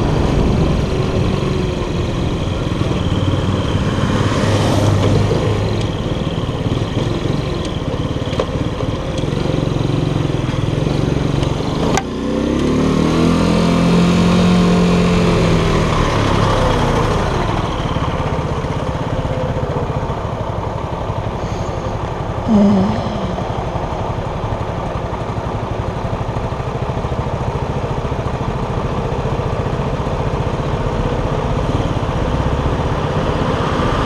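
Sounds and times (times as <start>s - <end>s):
moped engine running: 0.0s - 34.0s
truck engine passing: 21.0s - 24.6s.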